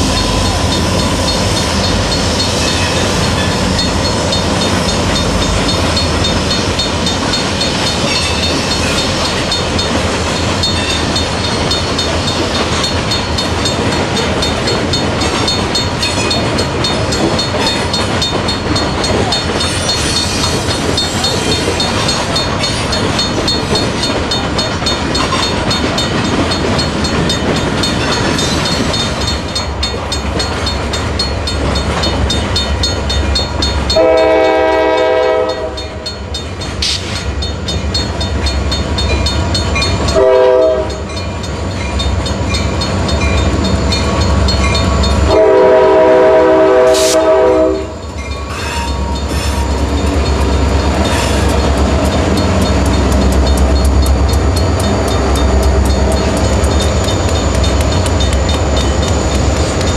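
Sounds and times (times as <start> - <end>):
crossing bell ringing: 0.0 - 59.9
freight train rumble and wheel clatter: 0.0 - 59.9
locomotive air horn blasts: 34.0 - 35.9, 40.2 - 41.0, 45.3 - 48.0.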